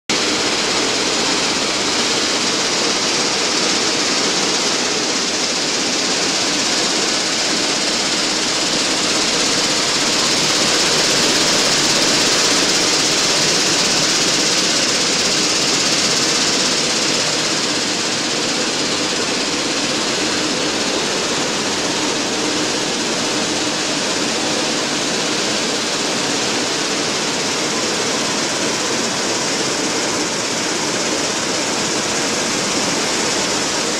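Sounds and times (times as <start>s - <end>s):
loud machinery hiss: 0.1s - 33.9s.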